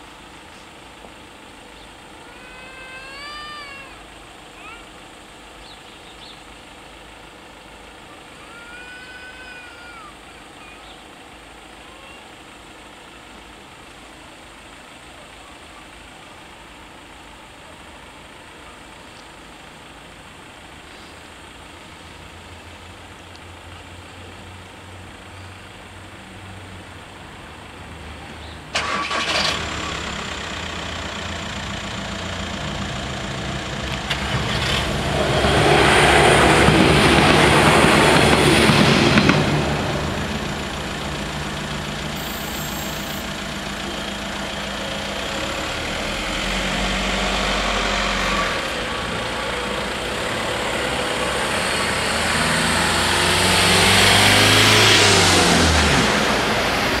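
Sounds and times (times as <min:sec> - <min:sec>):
cars driving off: 0:00.0 - 0:57.0
diesel railcar passing: 0:26.0 - 0:57.0.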